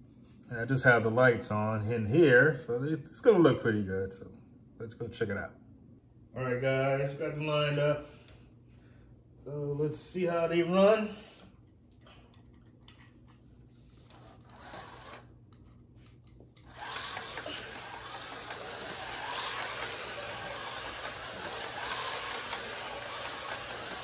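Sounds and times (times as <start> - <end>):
slot car motors whirring: 14.0 - 15.3, 16.6 - 24.0.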